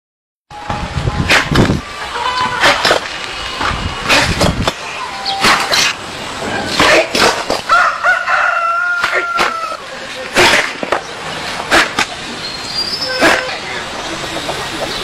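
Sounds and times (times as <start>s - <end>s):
rooster crowing: 7.7s - 9.8s
palm striking bricks: 9.0s - 9.6s.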